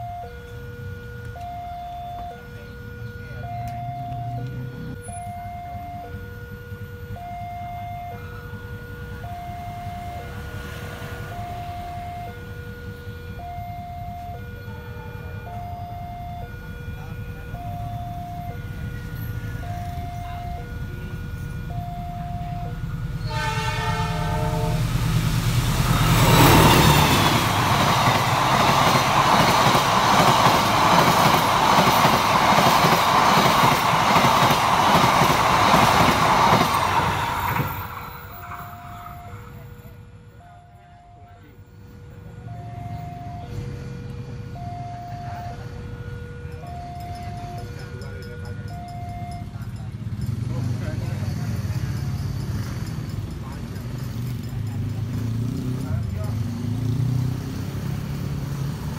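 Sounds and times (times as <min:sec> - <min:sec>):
level-crossing two-note warning chime: 0:00.0 - 0:10.6, 0:11.2 - 0:24.8, 0:44.4 - 0:49.6
train passing over crossing: 0:00.0 - 0:58.9
train horn: 0:08.0 - 0:39.7, 0:42.2 - 0:48.8.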